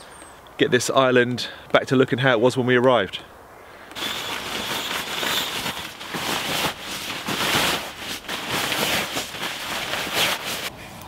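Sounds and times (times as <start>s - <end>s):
sleeping mat rustling and crinkling: 3.9s - 10.7s.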